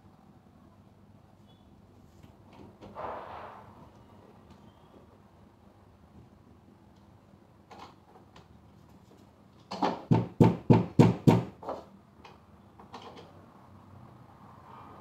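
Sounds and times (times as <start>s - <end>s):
knocks on wooden panels: 9.7s - 11.8s.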